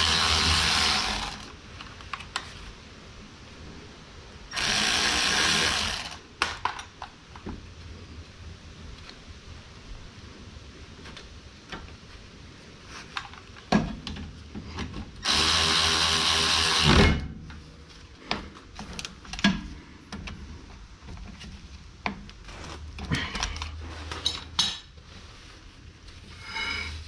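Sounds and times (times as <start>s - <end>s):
power tool running: 0.0s - 1.5s, 4.5s - 6.2s, 15.2s - 17.2s.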